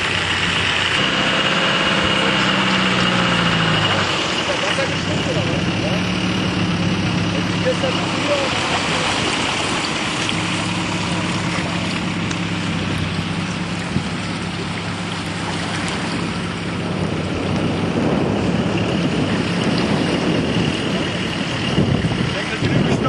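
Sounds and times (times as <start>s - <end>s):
engine running steadily: 0.0s - 23.0s.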